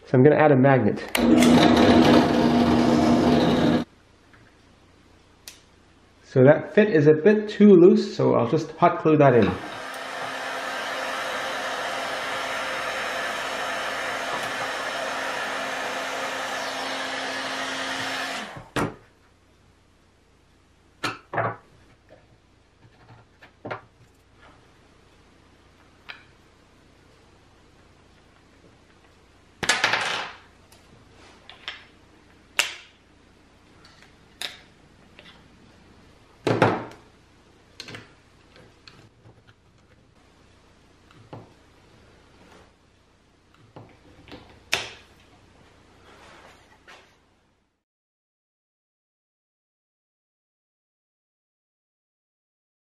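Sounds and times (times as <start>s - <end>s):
heat gun blowing: 9.6s - 18.7s.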